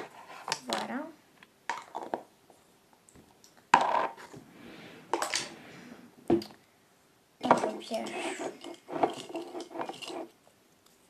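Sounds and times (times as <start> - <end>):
small hard objects knocking: 1.7 - 2.3.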